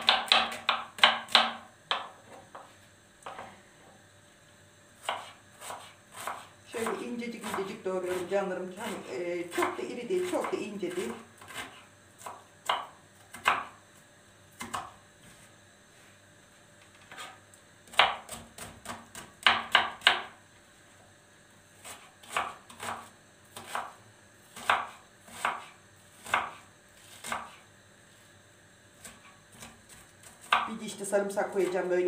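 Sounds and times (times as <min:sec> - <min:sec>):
knife chopping on plastic board: 0:00.0 - 0:02.6, 0:05.0 - 0:09.8, 0:10.4 - 0:13.8, 0:14.6 - 0:15.0, 0:17.1 - 0:20.3, 0:21.8 - 0:24.0, 0:24.6 - 0:26.6, 0:27.2 - 0:27.6.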